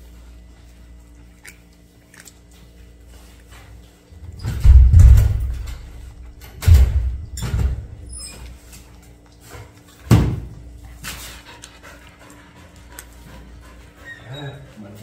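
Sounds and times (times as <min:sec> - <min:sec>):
cat lapping water: 0:01.4 - 0:02.4.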